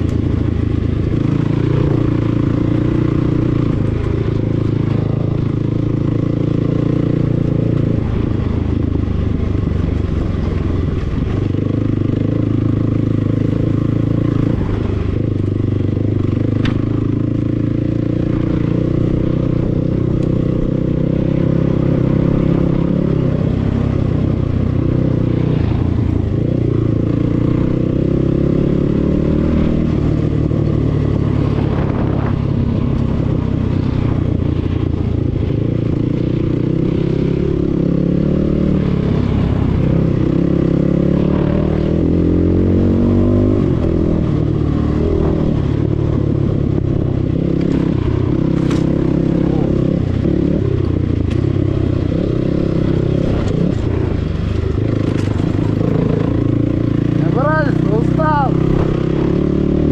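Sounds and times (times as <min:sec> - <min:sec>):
dirt bike engine revving: 0:35.8 - 0:59.9.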